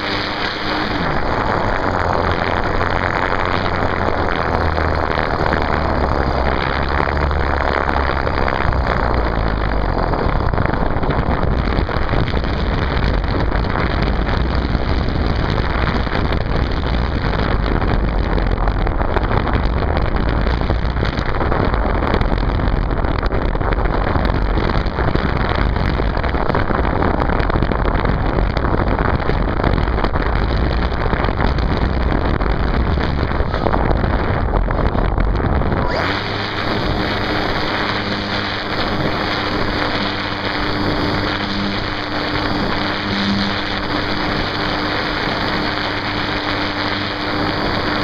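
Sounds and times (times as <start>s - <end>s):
model plane motor: 0.0s - 21.6s, 35.7s - 48.0s
wind over microphone: 0.0s - 48.0s.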